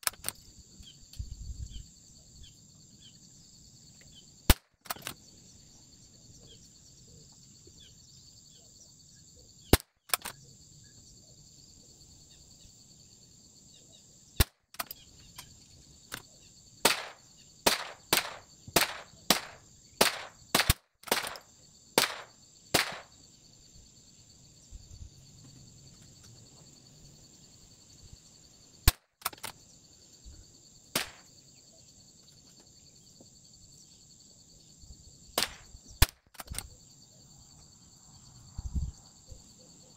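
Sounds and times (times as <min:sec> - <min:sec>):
rifle shots: 0:16.8 - 0:21.4, 0:22.0 - 0:23.1, 0:31.0 - 0:31.3, 0:35.4 - 0:36.2.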